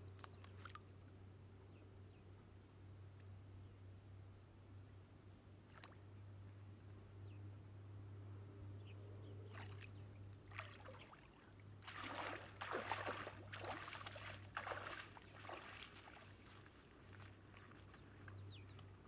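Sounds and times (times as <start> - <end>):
sloshing steps in muddy water: 9.5 - 18.9.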